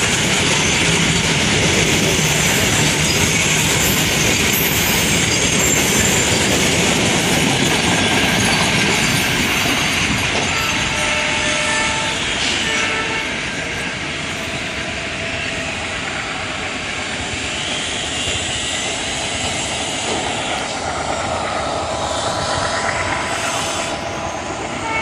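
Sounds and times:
freight train rumble and drone: 0:00.0 - 0:25.0.

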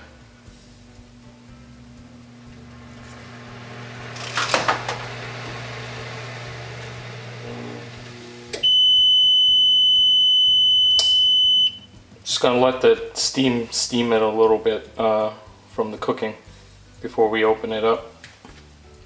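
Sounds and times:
machine humming: 0:00.0 - 0:11.9
high-pitched beep: 0:08.6 - 0:11.9.

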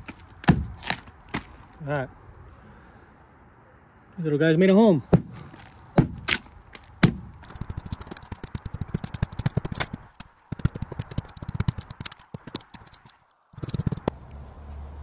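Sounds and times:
rotten wood crackling: 0:00.0 - 0:02.0, 0:05.1 - 0:14.1.

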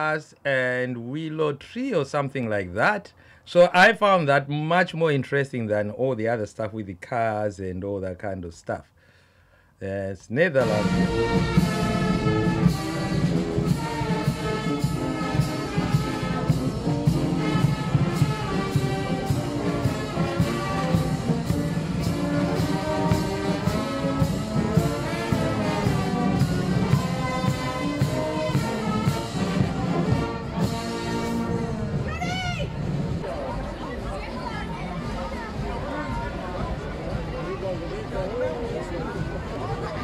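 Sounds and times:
brass band playing: 0:10.6 - 0:33.3.

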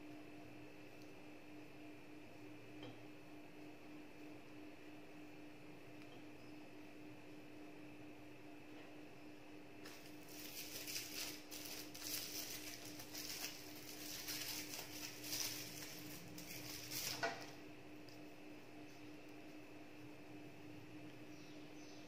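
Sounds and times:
plastic film crinkling: 0:09.9 - 0:17.5.

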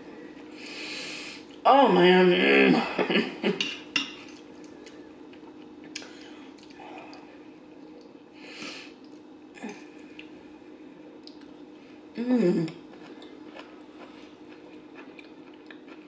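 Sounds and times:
faint steady hum: 0:00.0 - 0:16.0
soft chewing: 0:03.7 - 0:08.2, 0:08.9 - 0:10.5, 0:11.1 - 0:12.0, 0:12.7 - 0:16.0.

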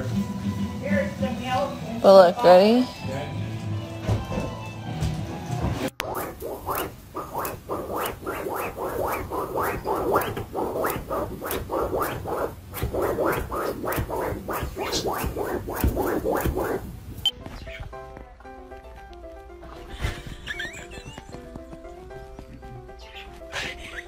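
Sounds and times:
cat scratching upholstery: 0:06.0 - 0:17.2.

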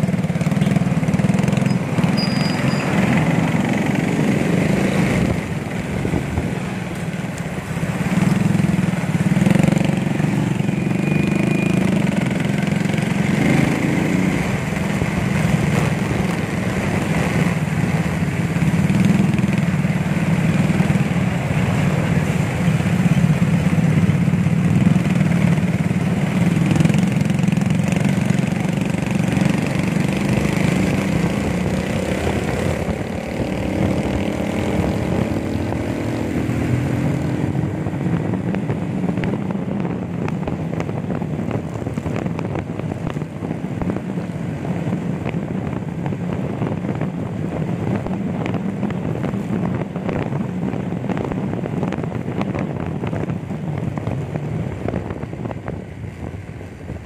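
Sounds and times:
traffic of motorcycles and vehicles: 0:00.0 - 0:57.0.

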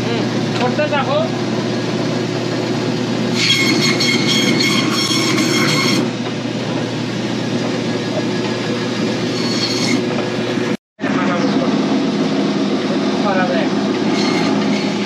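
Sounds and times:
band saw motor hum: 0:00.0 - 0:15.0
saw blade whining through bone: 0:03.3 - 0:06.1, 0:09.1 - 0:10.2, 0:13.9 - 0:15.0.

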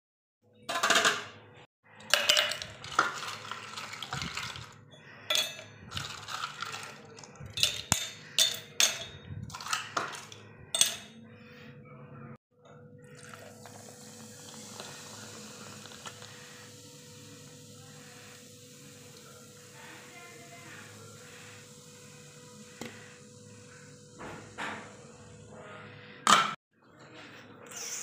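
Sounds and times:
cups and plates clinking: 0:02.0 - 0:11.2, 0:12.7 - 0:16.4.

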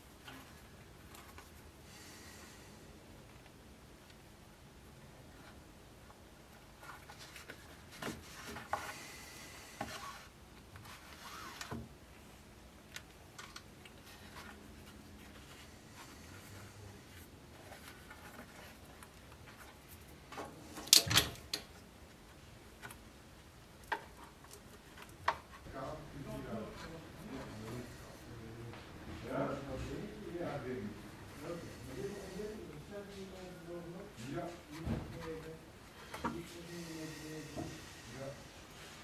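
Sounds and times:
thread rubbing through leather: 0:09.9 - 0:11.8.

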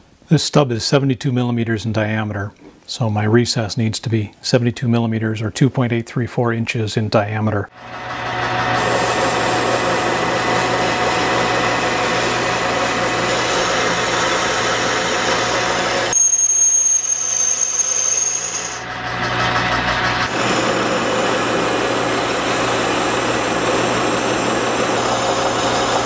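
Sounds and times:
high whine: 0:07.7 - 0:26.0
metal lathe cutting: 0:07.8 - 0:26.0.

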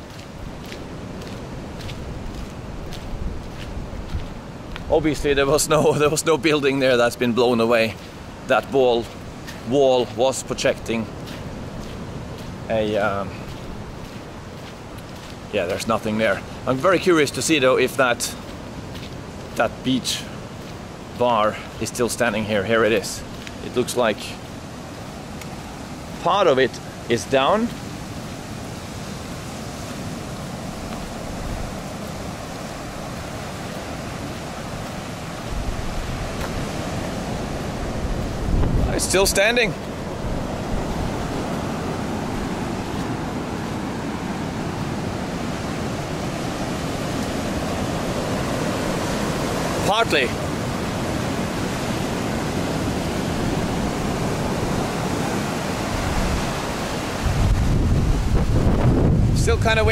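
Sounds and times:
wind buffeting microphone: 0:00.0 - 0:06.1, 0:26.9 - 0:49.8, 0:50.4 - 0:59.9
surf washing onto beach: 0:00.0 - 0:59.9.

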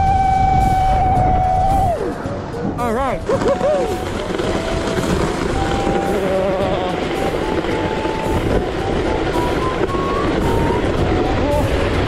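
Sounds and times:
plastic sled scraping over snow: 0:02.7 - 0:12.0.

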